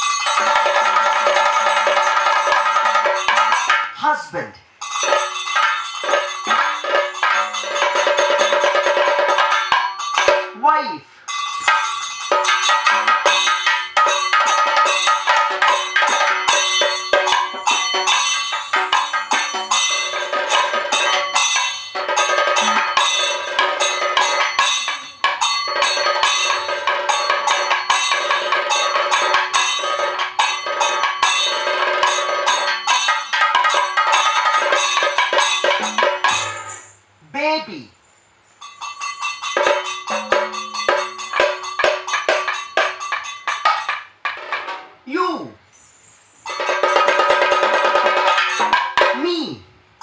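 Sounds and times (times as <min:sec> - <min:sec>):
ringing metal percussion: 0:00.0 - 0:04.0, 0:04.7 - 0:37.2, 0:38.0 - 0:45.0, 0:45.7 - 0:49.4
fast dense drum strokes: 0:33.3 - 0:36.8, 0:39.6 - 0:43.2.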